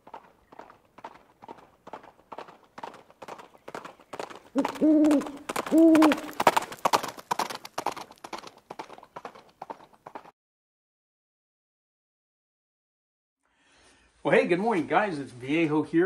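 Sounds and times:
even clopping: 0.0 - 10.3
loud hooting calls: 4.6 - 6.4.

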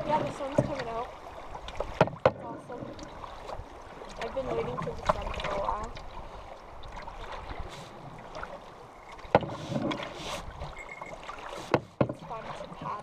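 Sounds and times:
water washing along hull: 0.0 - 13.0
paddle strokes swishing: 2.7 - 13.0.

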